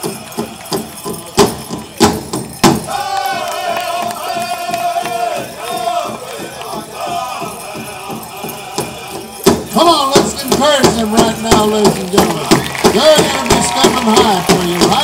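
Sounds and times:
high held sung cry: 0:00.0 - 0:02.0, 0:02.8 - 0:11.1
big drum beating: 0:00.0 - 0:15.0.

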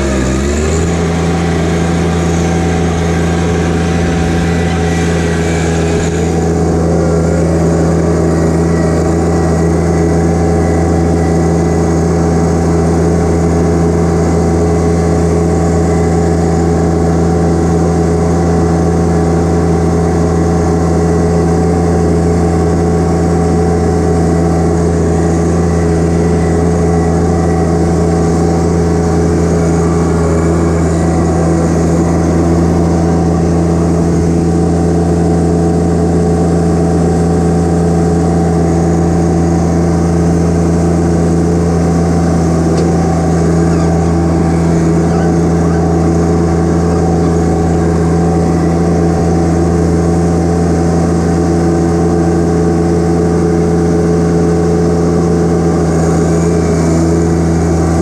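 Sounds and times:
tractor diesel engine running: 0:00.0 - 0:58.0.

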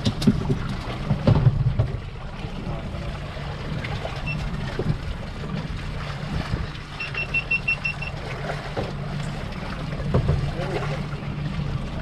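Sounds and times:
boat engine humming: 0:00.0 - 0:12.0
water noise: 0:00.0 - 0:12.0
wind: 0:00.0 - 0:12.0
short high electronic beeps: 0:07.0 - 0:08.1.

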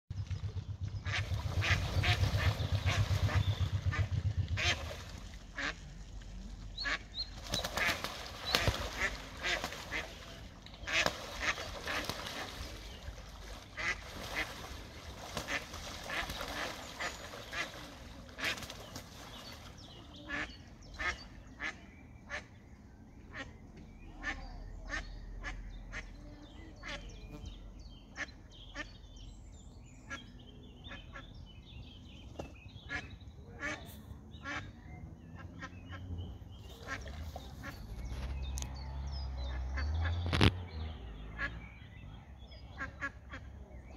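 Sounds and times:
low rumble: 0:00.1 - 0:11.8
water splashing: 0:00.1 - 0:20.6
duck quacking: 0:01.0 - 0:04.8, 0:05.5 - 0:05.8, 0:06.8 - 0:07.1, 0:08.6 - 0:10.2, 0:13.8 - 0:14.0, 0:32.9 - 0:34.7.

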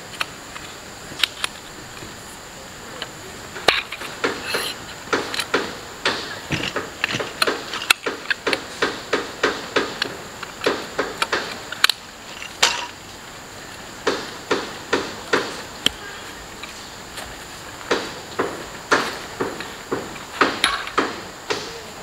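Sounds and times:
sharp knocks: 0:03.5 - 0:12.0, 0:14.0 - 0:16.2, 0:17.8 - 0:21.9.

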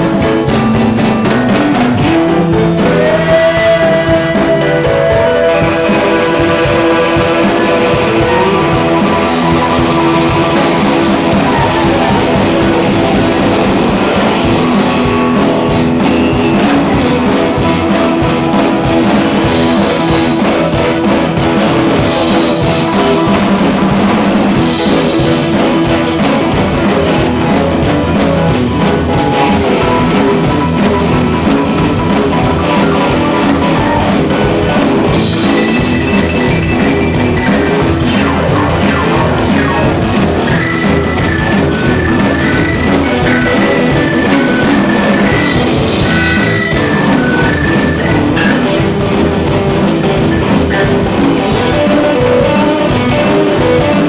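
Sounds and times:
drum kit beat: 0:00.0 - 0:54.0
electric guitars: 0:00.0 - 0:54.0.

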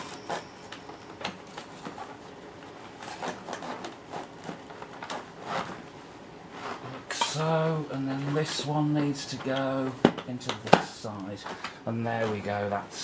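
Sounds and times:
rustling: 0:00.0 - 0:05.9.

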